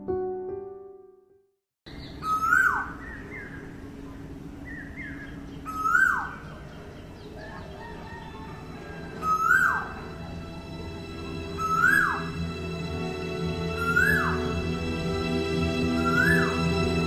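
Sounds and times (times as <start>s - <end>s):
bird calling loudly: 1.9s - 3.7s, 4.7s - 10.2s, 11.5s - 12.5s, 13.7s - 14.7s, 15.9s - 17.0s
faint bird chirps: 1.9s - 10.1s.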